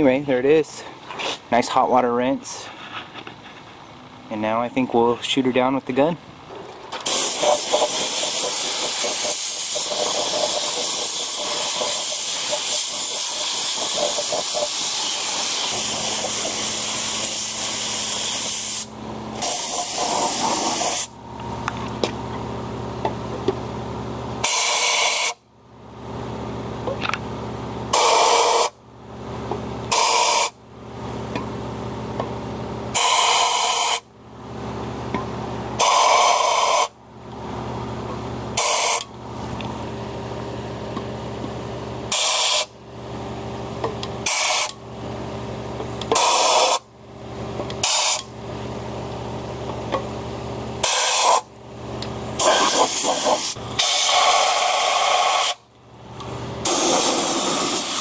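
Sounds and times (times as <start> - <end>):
low machine hum: 0.0 - 24.4, 25.4 - 57.8
spray gun hissing: 7.0 - 21.1, 50.8 - 51.4, 52.4 - 55.6, 56.7 - 58.0.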